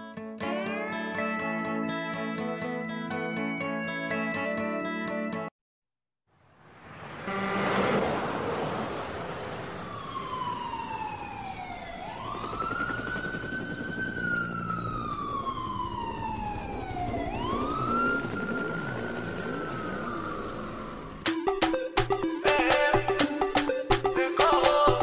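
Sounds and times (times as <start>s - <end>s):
street traffic noise: 6.3s - 11.6s
siren wailing: 9.6s - 23.9s.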